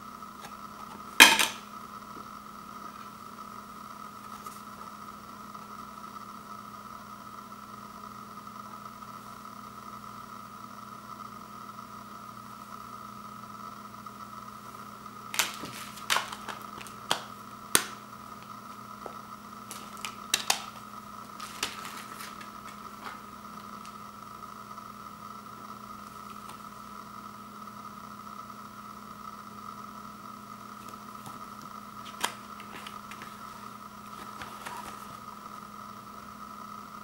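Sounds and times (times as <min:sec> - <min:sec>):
steady background hum: 0:00.0 - 0:37.0
plastic disc case clicks and snaps: 0:01.2 - 0:01.6, 0:15.4 - 0:18.0, 0:19.7 - 0:20.8, 0:21.4 - 0:23.9, 0:32.0 - 0:33.5.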